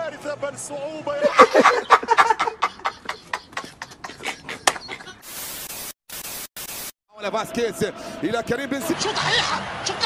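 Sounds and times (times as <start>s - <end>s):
man speaking excitedly: 0.0s - 1.4s, 7.1s - 9.4s
static hiss: 5.2s - 7.0s.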